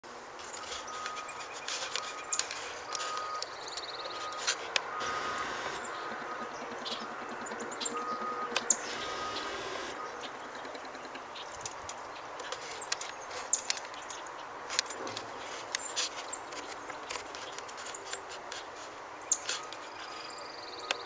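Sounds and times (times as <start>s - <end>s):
birds chirping: 0.4s - 21.0s
distant reversing alarm beeping: 0.7s - 10.3s.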